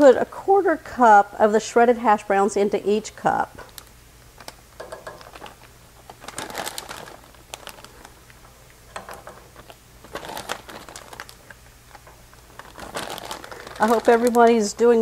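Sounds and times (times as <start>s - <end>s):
hash browns rustling: 4.6s - 15.0s.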